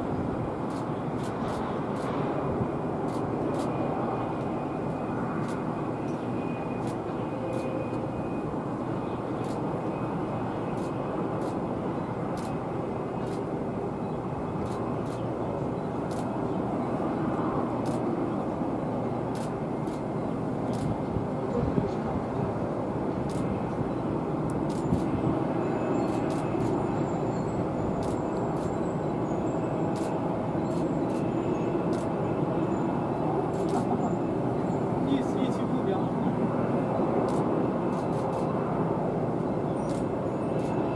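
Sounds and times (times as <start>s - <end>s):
distant jet engines rushing: 0.0s - 40.9s.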